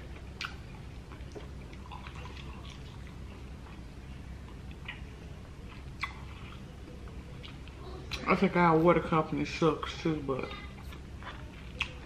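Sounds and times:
low room hum: 0:00.0 - 0:12.0
chewing clicks and wet smacks: 0:00.1 - 0:08.3, 0:10.7 - 0:12.0.

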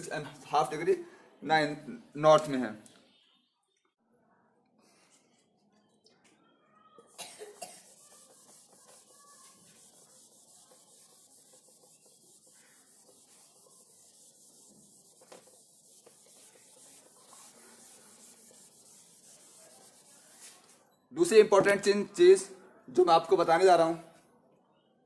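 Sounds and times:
duster wiping whiteboard: 0:07.8 - 0:20.8.

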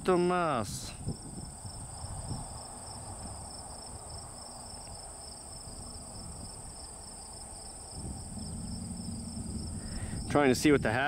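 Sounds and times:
insects chirring: 0:00.0 - 0:11.0
low rumble: 0:07.8 - 0:11.0.

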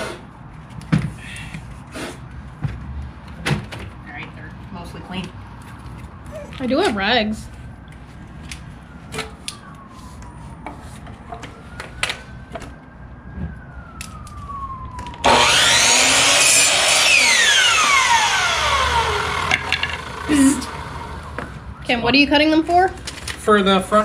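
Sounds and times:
miter saw cutting wood: 0:15.2 - 0:21.4.

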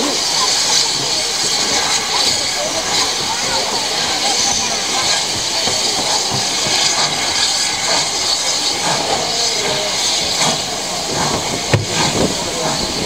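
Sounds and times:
steam venting hiss: 0:00.0 - 0:13.0.

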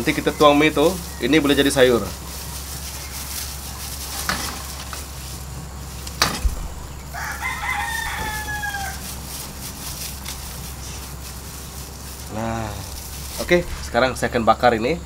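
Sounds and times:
rooster crowing: 0:06.6 - 0:11.2.

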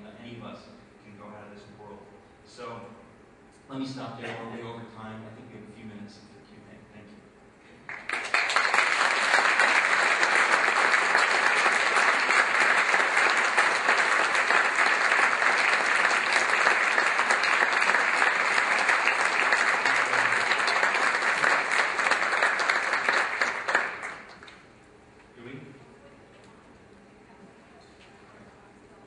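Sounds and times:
audience applauding: 0:07.9 - 0:24.6.

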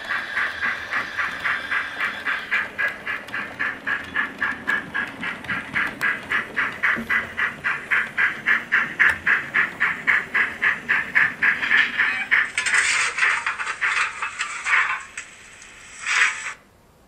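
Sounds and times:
steam locomotive chuffs from small speaker: 0:00.0 - 0:15.2.

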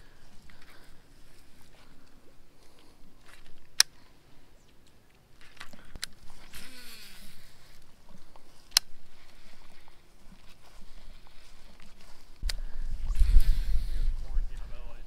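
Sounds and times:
line whirring off reel: 0:13.0 - 0:14.2.

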